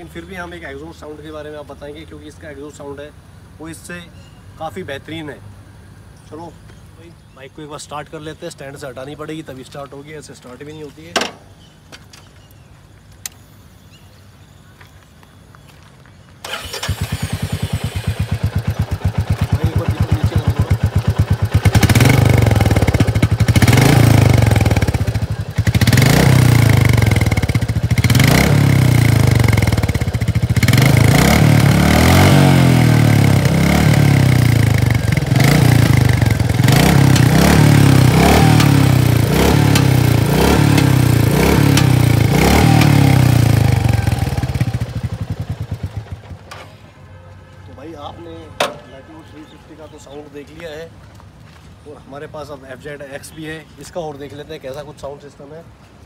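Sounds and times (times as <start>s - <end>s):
motorcycle engine idling and revving: 16.4s - 47.2s.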